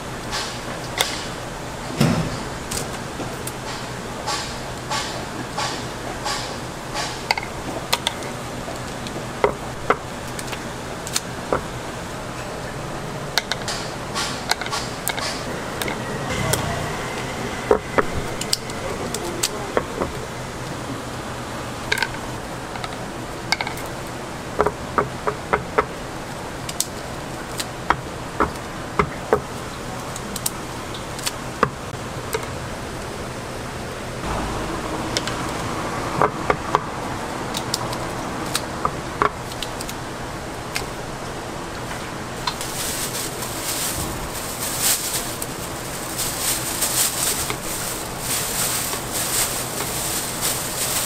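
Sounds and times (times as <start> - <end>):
plastic bag crinkling: 42.5 - 51.0.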